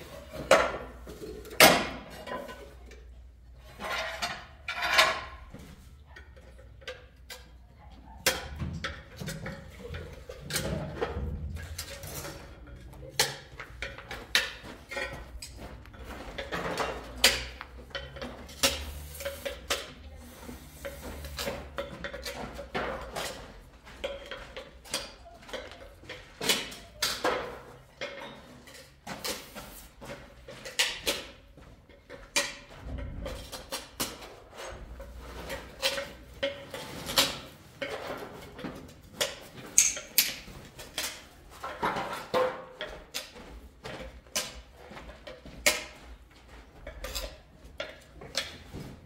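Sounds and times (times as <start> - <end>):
ceramic tiles clinking and scraping: 8.4 - 29.8.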